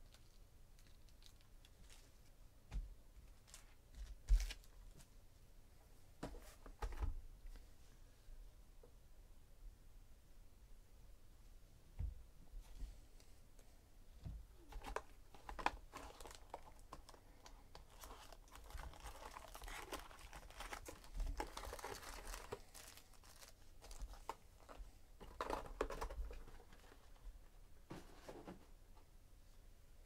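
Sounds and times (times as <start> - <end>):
foil packs crinkling and tearing: 14.8 - 26.4.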